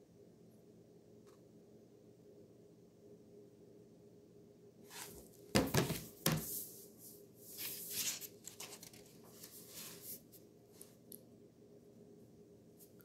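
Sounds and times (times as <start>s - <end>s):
book rustling and handling: 4.9s - 6.7s, 7.5s - 10.9s
book knocking on surface: 5.6s - 6.4s.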